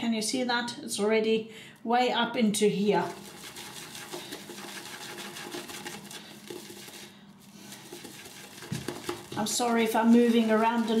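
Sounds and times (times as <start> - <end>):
shaving brush swishing lather in bowl: 3.0 - 11.0.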